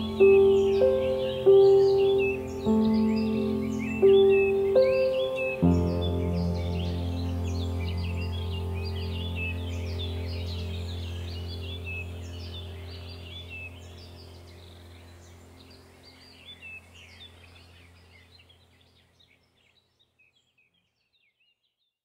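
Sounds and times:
low steady hum: 0:00.0 - 0:19.2
birds chirping: 0:00.0 - 0:21.6.

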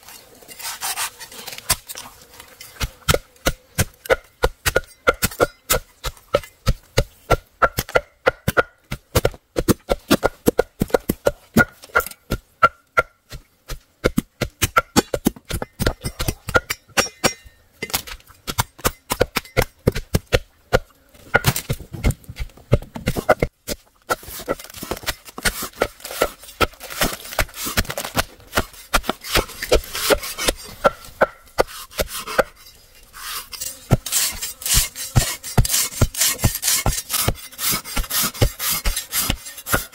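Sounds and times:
scraping and rubbing: 0:00.0 - 0:03.1, 0:24.1 - 0:39.9
rapid chopping strikes: 0:02.8 - 0:32.5, 0:33.9 - 0:39.9.

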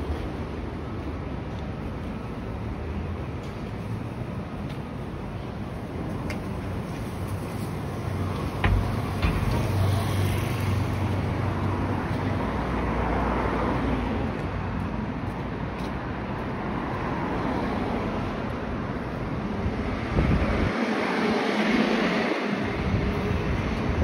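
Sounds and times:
cars passing: 0:00.0 - 0:24.0
vehicle engine hum: 0:05.6 - 0:13.3.

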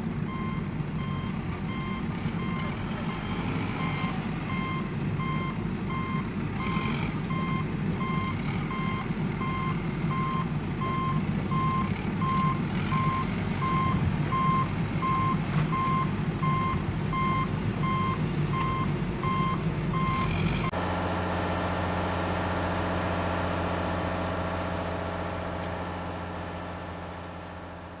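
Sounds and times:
truck engine rumbling: 0:00.0 - 0:28.0
truck reversing alarm beeping: 0:00.2 - 0:20.8.

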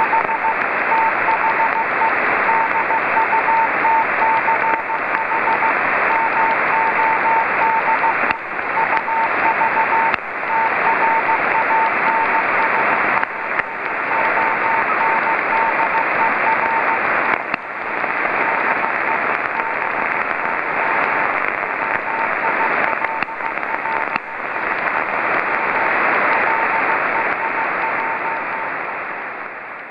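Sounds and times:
morse code tone: 0:00.0 - 0:12.8, 0:13.4 - 0:17.0, 0:21.6 - 0:24.2, 0:25.7 - 0:28.7
receiver hiss: 0:00.0 - 0:29.9.

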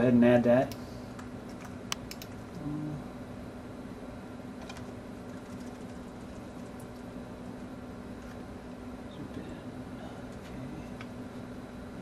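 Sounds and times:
steady low hum: 0:00.0 - 0:12.0
computer keyboard key clicks: 0:01.5 - 0:02.4.

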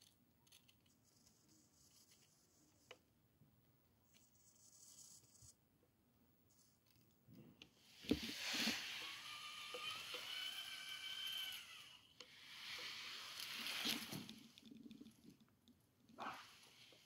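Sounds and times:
model tractor electric motor whining: 0:08.2 - 0:13.4.

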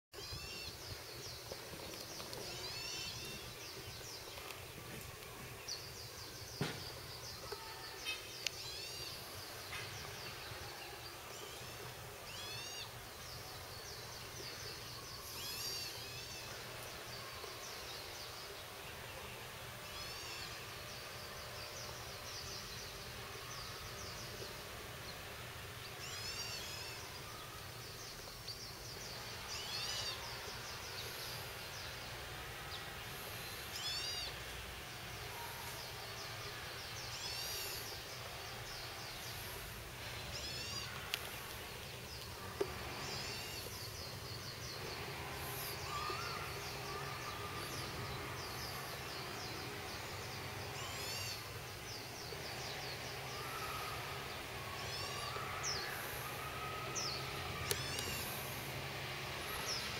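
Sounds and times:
birds calling: 0:00.2 - 0:59.9
high insect buzz: 0:37.0 - 0:41.8, 0:52.8 - 0:59.9.

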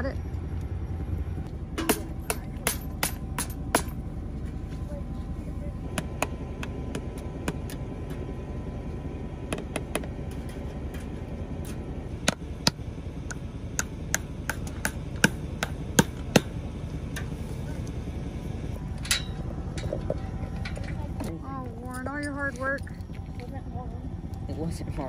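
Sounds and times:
low rumble: 0:00.0 - 0:25.0.

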